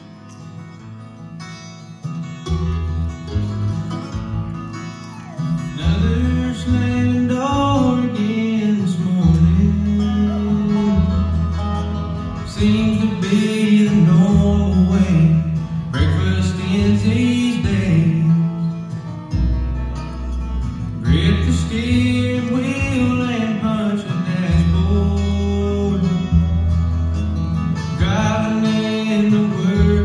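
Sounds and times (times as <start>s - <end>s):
bluegrass band playing: 0.0s - 30.0s.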